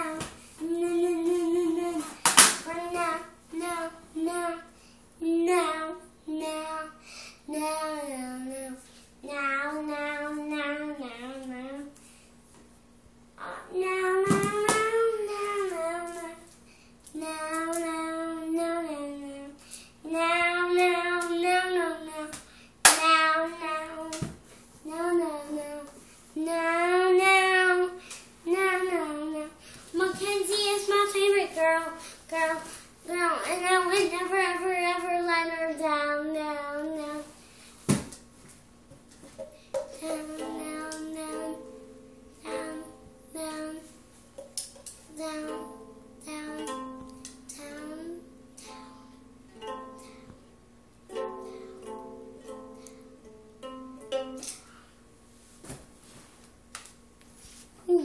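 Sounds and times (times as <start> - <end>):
girl singing held notes: 0.0 - 4.6, 13.4 - 16.5
toy ukulele strumming: 44.5 - 47.8, 51.1 - 54.6.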